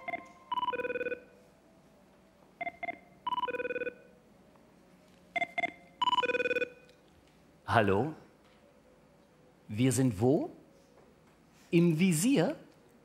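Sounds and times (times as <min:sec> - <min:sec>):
phone ringtone beeping and warbling: 0:00.0 - 0:01.4, 0:02.6 - 0:04.1, 0:05.4 - 0:06.8.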